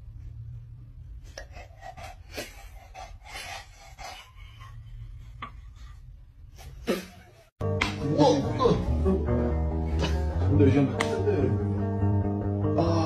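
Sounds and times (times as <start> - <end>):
dog panting: 1.4 - 5.8.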